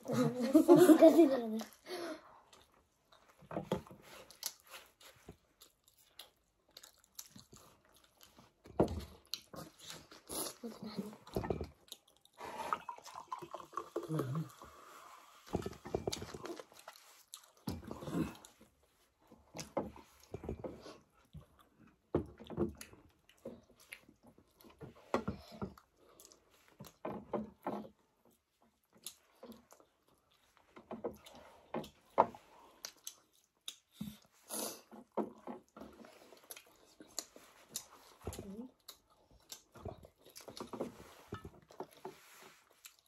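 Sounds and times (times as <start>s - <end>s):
people chewing: 0.0s - 43.0s.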